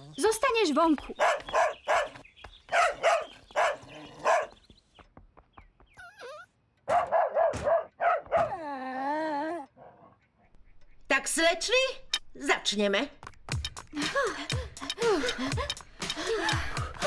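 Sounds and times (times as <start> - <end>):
dog whining: 6.0 - 6.6, 8.1 - 9.8
cartoon dog barking: 6.9 - 8.6.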